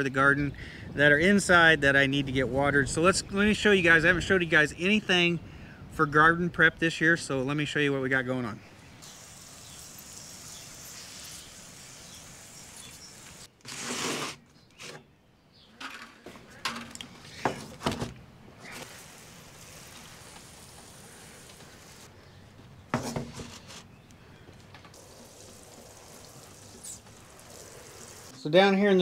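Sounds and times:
water sprinkling from watering can: 9.0 - 13.5, 18.6 - 22.1, 24.9 - 28.4
plastic trays knocking and rustling: 22.9 - 23.7.

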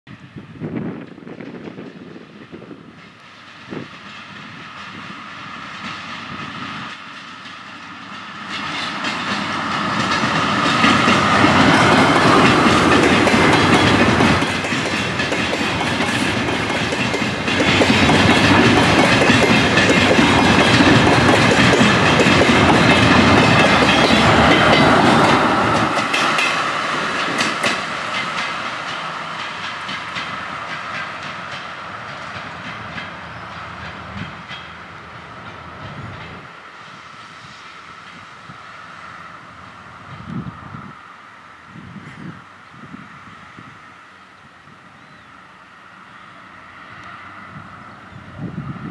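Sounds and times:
train wheels clattering on rail joints: 0.7 - 36.6.

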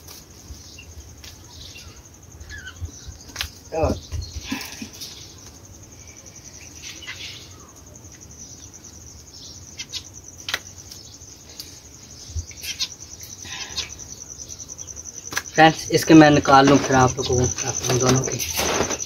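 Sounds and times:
insect chirring: 0.0 - 19.0
small birds chirping: 0.1 - 19.0.

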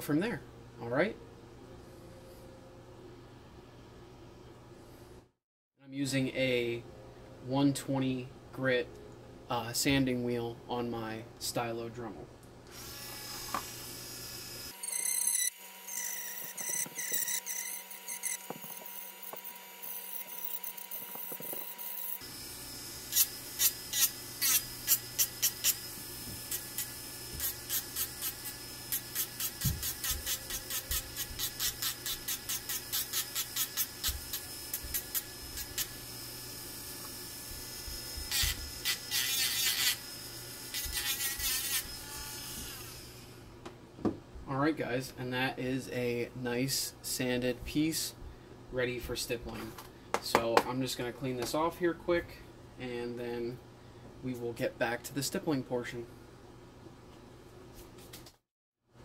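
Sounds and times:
rotary tool whining: 12.7 - 43.4.

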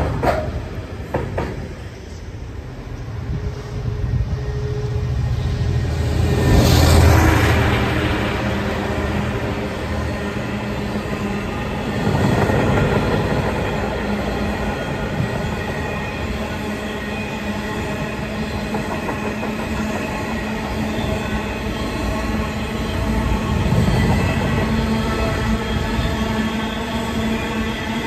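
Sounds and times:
wagon wheels rumbling on rail: 11.5 - 16.6.

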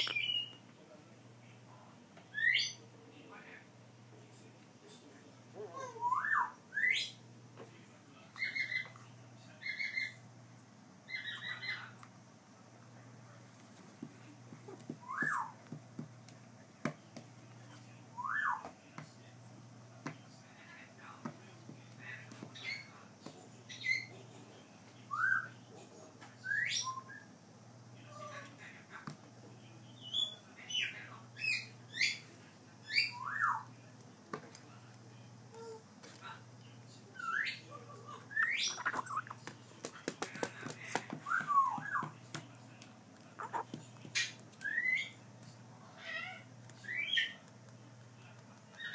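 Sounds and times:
parrot calling and whistling: 0.0 - 0.6, 2.3 - 2.8, 5.6 - 7.2, 8.4 - 9.0, 11.1 - 11.9, 15.0 - 15.6, 18.2 - 18.7, 25.1 - 25.6, 26.4 - 27.3, 32.8 - 33.7, 37.1 - 39.4, 41.2 - 42.2, 43.4 - 45.2, 46.0 - 47.4
parrot chick whistled calls: 0.0 - 0.6, 2.3 - 2.8, 6.0 - 7.2, 15.0 - 15.6, 18.2 - 18.6, 26.4 - 27.3, 44.2 - 45.2.

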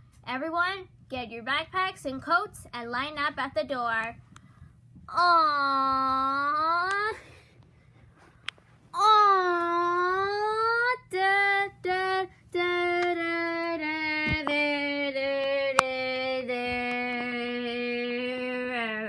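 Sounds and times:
child singing without words: 8.9 - 19.0.

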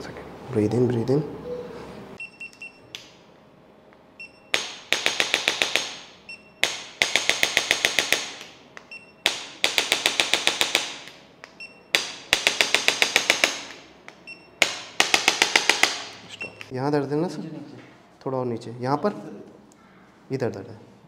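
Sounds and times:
rapid sharp clicks: 4.5 - 16.1.

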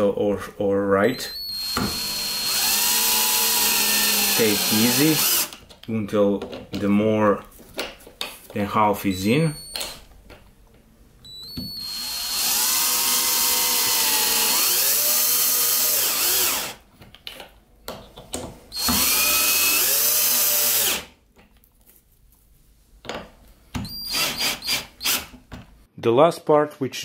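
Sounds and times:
cordless drill driving screws: 1.3 - 5.6, 11.4 - 16.8, 18.8 - 21.1, 23.8 - 25.4
handling knocks and clicks: 5.5 - 8.7, 9.7 - 10.9, 17.0 - 18.6.

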